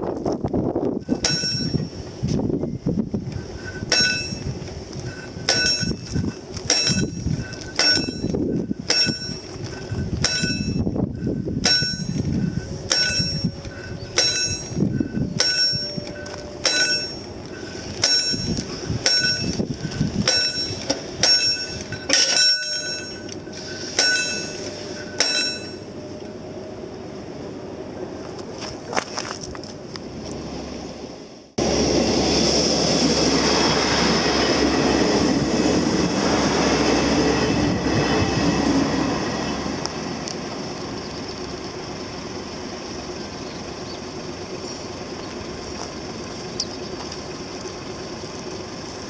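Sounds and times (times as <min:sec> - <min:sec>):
low rumble: 0:00.0 - 0:49.0
level crossing warning bell ringing: 0:01.0 - 0:27.0.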